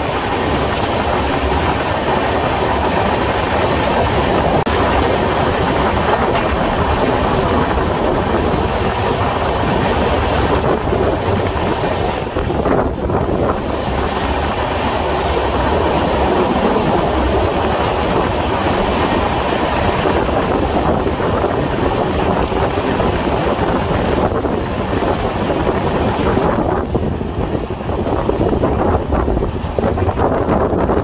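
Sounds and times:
train wheels rumbling on rails: 0:00.0 - 0:31.0
wind buffeting microphone: 0:00.0 - 0:31.0.

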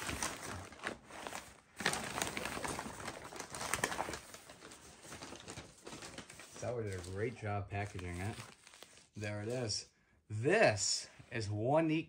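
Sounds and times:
paper crinkling and rustling: 0:00.0 - 0:09.6.

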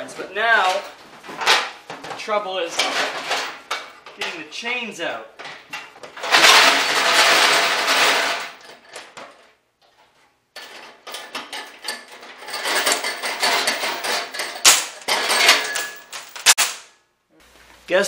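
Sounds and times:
chains rattling in metal tank: 0:02.7 - 0:04.4, 0:06.1 - 0:09.4, 0:10.6 - 0:16.7
chain links clinking and scraping: 0:06.1 - 0:09.5, 0:10.6 - 0:16.8
sharp metal clank: 0:13.5 - 0:17.0.

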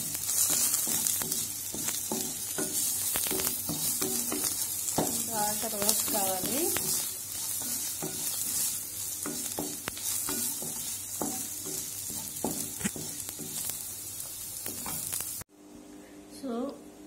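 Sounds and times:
spatula tapping and scraping pan: 0:00.0 - 0:15.3
food sizzling in a frying pan: 0:00.0 - 0:15.5.

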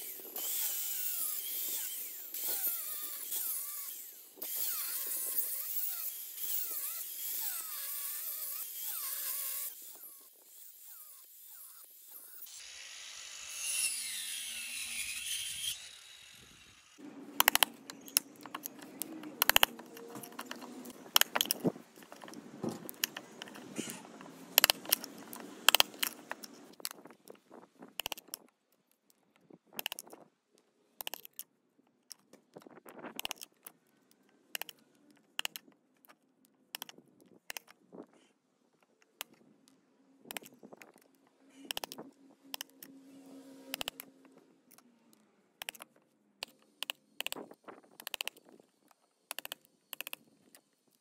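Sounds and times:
angle grinder winding down: 0:00.0 - 0:18.1.

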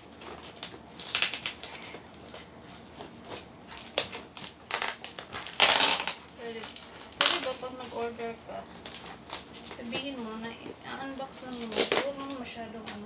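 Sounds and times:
packaging crinkling and tearing: 0:00.0 - 0:13.0.

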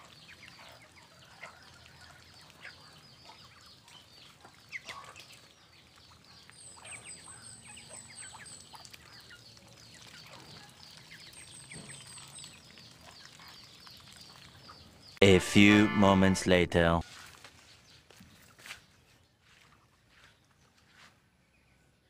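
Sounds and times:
birds pecking and scuffling: 0:00.0 - 0:15.2, 0:17.1 - 0:21.8
ducklings peeping: 0:00.0 - 0:16.3
rapid run of very high notes: 0:15.2 - 0:17.0.

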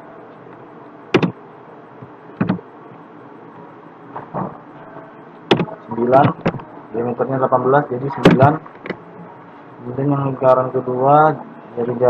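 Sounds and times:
steady low hiss: 0:00.0 - 0:12.0
keyboard key clicks: 0:01.2 - 0:01.4, 0:02.4 - 0:02.6, 0:05.5 - 0:06.6.

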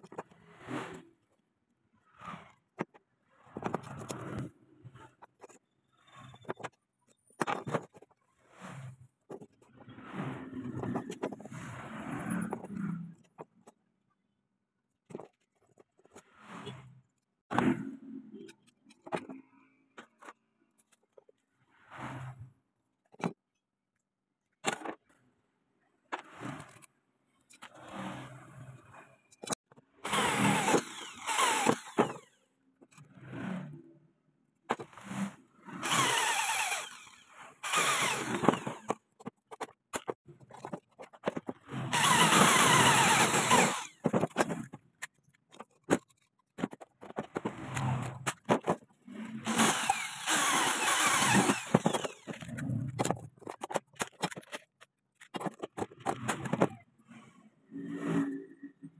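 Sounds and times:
electric drill boring metal: 0:30.0 - 0:32.3, 0:35.8 - 0:39.0, 0:41.9 - 0:44.0, 0:49.4 - 0:52.4.

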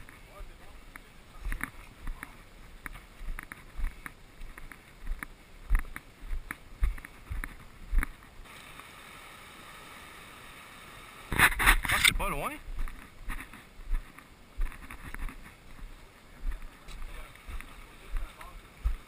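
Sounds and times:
steady hiss: 0:00.0 - 0:19.0
footsteps on rock: 0:00.9 - 0:08.4, 0:11.3 - 0:19.0.

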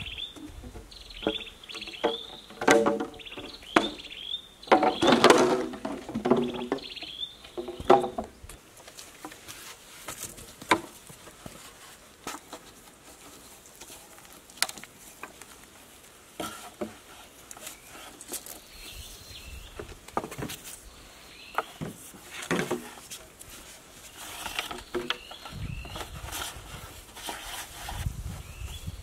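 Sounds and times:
birds chirping: 0:00.0 - 0:08.6, 0:17.5 - 0:22.1, 0:24.0 - 0:26.5, 0:28.3 - 0:29.0
bamboo poles clattering together: 0:00.2 - 0:18.6, 0:19.7 - 0:20.8, 0:21.5 - 0:28.1.

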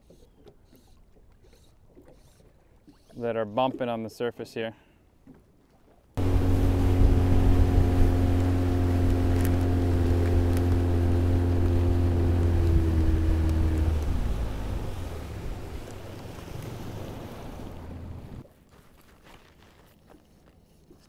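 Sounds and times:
water rushing past hull: 0:06.1 - 0:18.5
outboard motor running: 0:06.2 - 0:18.6.

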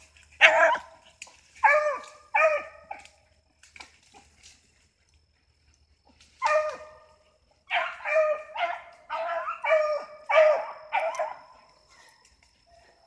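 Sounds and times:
hound baying: 0:00.4 - 0:03.2, 0:05.7 - 0:13.0.

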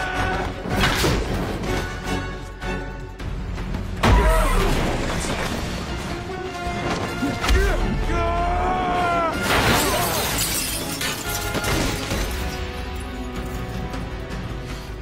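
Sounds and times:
dramatic music score: 0:00.0 - 0:15.0
glass shattering: 0:09.4 - 0:13.7.

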